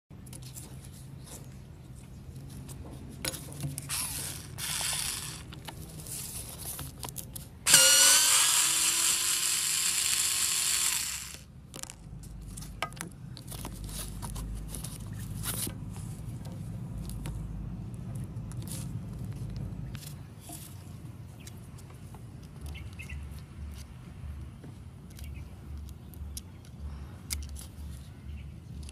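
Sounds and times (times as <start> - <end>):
drill motor whirring: 3.9 - 5.6, 7.7 - 11.5.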